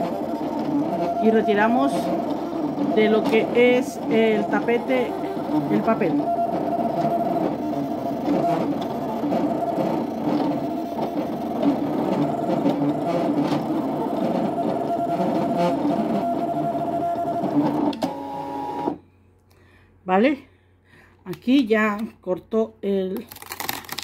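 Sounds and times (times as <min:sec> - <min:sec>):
cutting machine motors whirring: 0:00.0 - 0:19.0.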